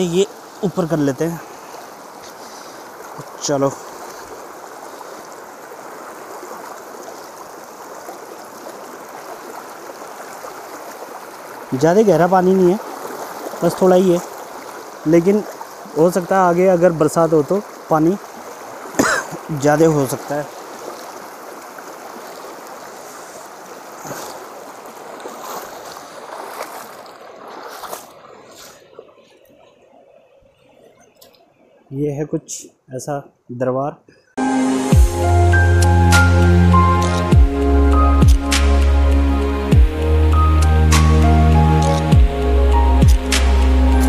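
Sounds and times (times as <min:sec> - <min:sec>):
river rushing over stones: 0:00.0 - 0:30.0
feet wading through water: 0:00.0 - 0:31.9.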